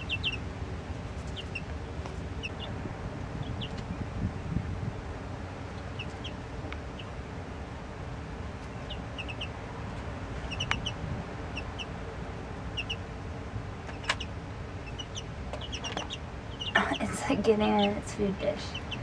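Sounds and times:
baby chicks peeping: 0.0s - 19.0s
steady low hum: 0.0s - 19.0s.

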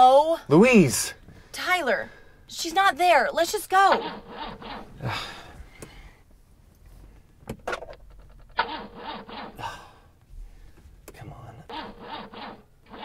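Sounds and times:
soft rustling: 4.9s - 7.5s
ignition ticking: 5.7s - 6.0s
clicks and knocks in car: 7.3s - 8.6s.

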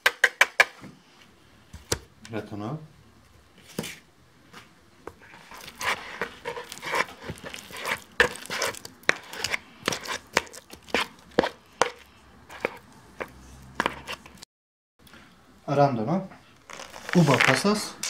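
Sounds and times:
spatula mashing banana in bowl: 5.1s - 14.4s
spatula scraping plastic bowl: 5.1s - 14.4s.

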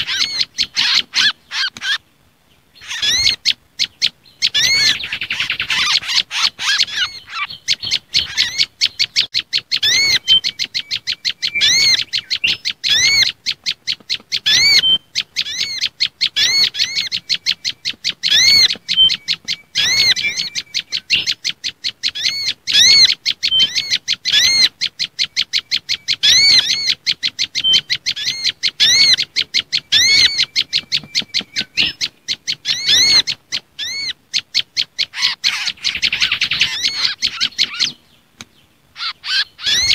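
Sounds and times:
songbirds chirping rapidly: 0.0s - 39.9s.

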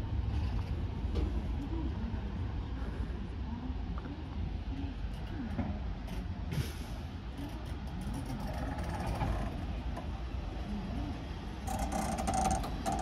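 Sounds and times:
train rumbling at platform: 0.0s - 13.0s
faint voices: 1.2s - 13.0s
hiss with clicks: 6.5s - 7.2s.

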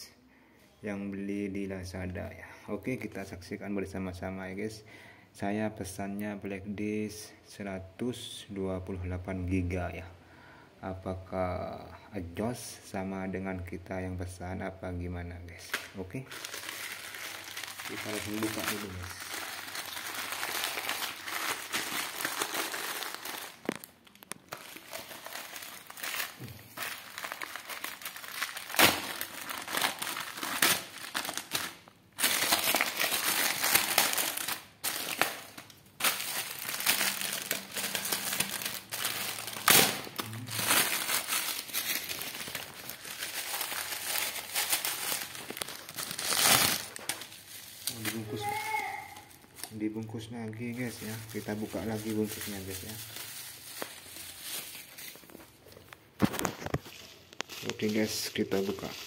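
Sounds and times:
plastic mailer bag crinkling: 15.6s - 59.0s.

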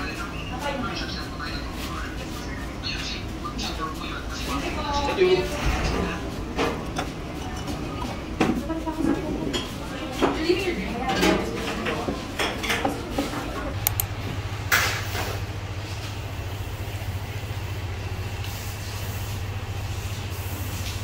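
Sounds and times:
low machine hum: 0.0s - 21.0s
dishes clinking: 5.4s - 14.0s
sharp clicks: 13.8s - 14.2s.

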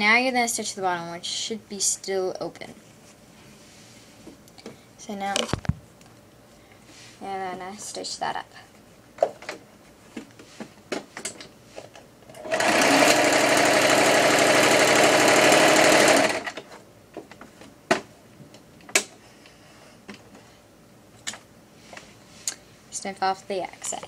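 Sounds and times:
sewing machine stitching: 12.4s - 16.6s.

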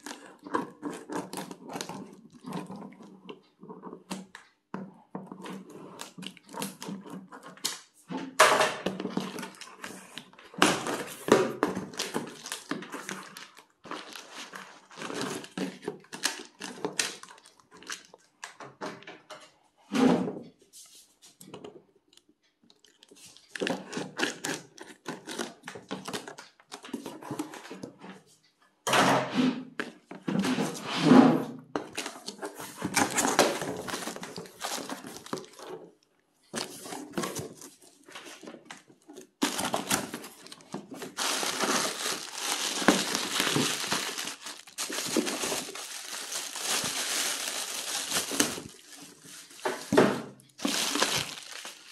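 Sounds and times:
plastic wrap tearing and rustling: 8.8s - 18.2s, 31.9s - 35.8s, 39.2s - 51.9s
plastic packaging crinkling: 10.8s - 18.2s, 32.0s - 36.0s, 39.1s - 50.0s, 50.6s - 51.9s
cardboard box handled: 39.4s - 50.0s.

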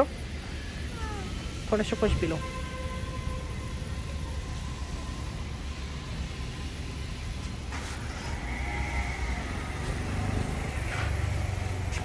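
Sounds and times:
steady high tone: 0.0s - 7.3s
street traffic rumble: 0.0s - 12.0s.

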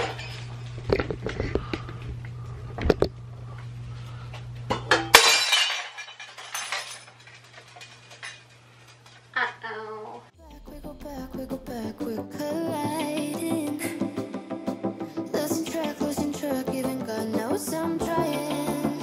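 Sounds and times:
knocks and clinks of handling: 4.7s - 9.2s
glass shattering: 4.9s - 8.4s
glass pieces tinkling: 5.1s - 8.5s.

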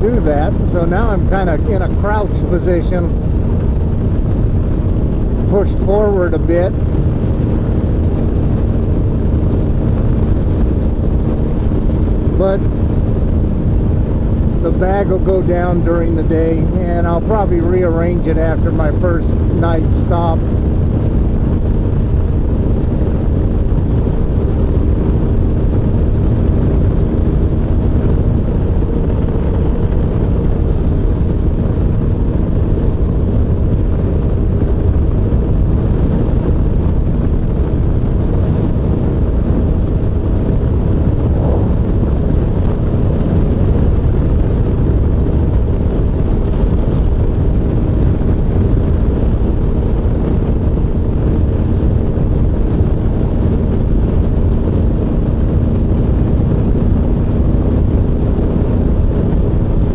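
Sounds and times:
motorcycle engine droning: 0.0s - 59.9s
wind rushing on microphone: 0.0s - 59.9s.

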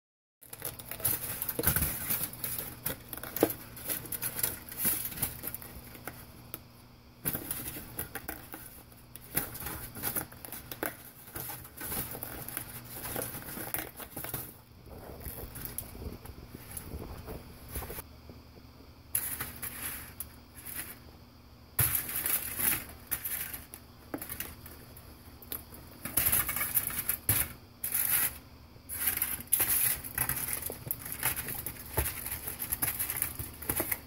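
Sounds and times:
aluminium foil crinkling: 0.4s - 6.3s, 25.5s - 34.0s
low steady hum: 0.4s - 34.0s.

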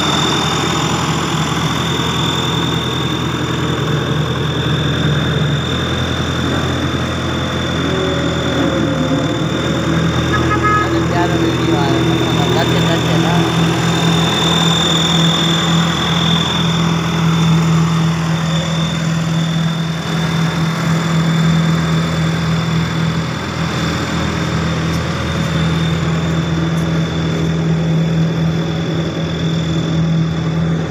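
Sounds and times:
road roller diesel engine: 0.0s - 30.9s
thin high whine: 4.7s - 21.8s.

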